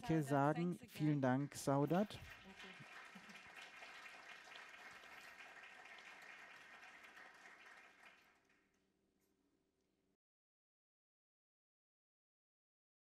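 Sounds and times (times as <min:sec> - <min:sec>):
faint audience applause: 0:01.2 - 0:08.8.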